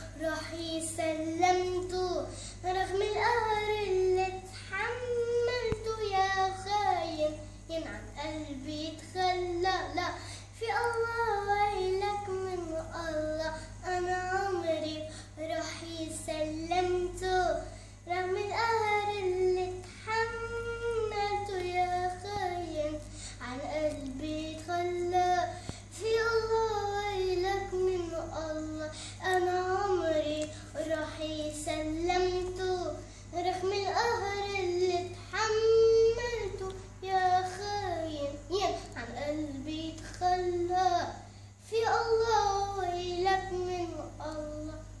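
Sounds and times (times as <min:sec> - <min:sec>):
girl singing: 0:00.0 - 0:45.0
girl breathing: 0:02.2 - 0:02.7, 0:10.1 - 0:10.6, 0:13.5 - 0:13.8, 0:15.0 - 0:15.4, 0:17.6 - 0:18.1, 0:23.0 - 0:23.5, 0:25.5 - 0:25.9, 0:28.9 - 0:29.2, 0:33.0 - 0:33.4, 0:41.2 - 0:41.6.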